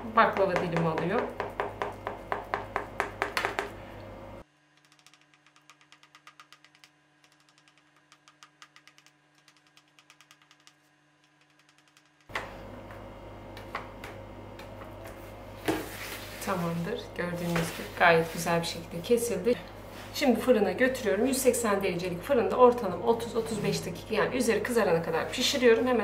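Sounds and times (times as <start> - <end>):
low steady hum: 12.3 - 26.0.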